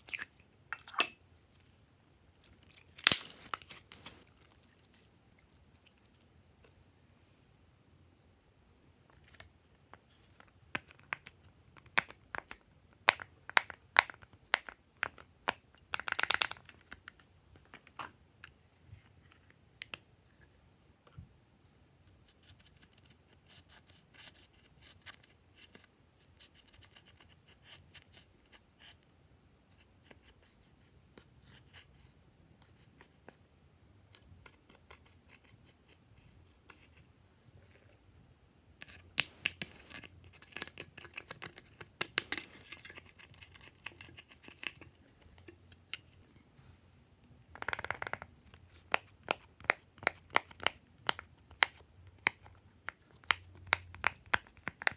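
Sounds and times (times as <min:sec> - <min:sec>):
plastic stick scratching eyeshadow: 0:38.8 - 0:46.1.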